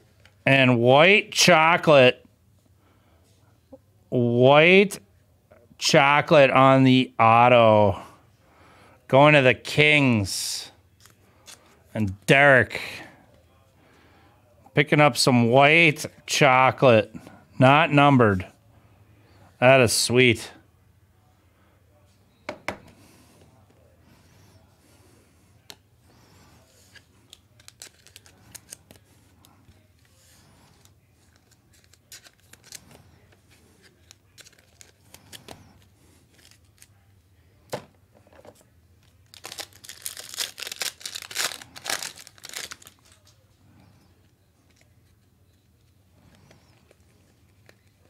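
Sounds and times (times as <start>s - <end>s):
wrapper tearing and crinkling: 27.6s - 28.8s, 31.4s - 32.9s, 34.3s - 35.5s, 39.2s - 43.3s.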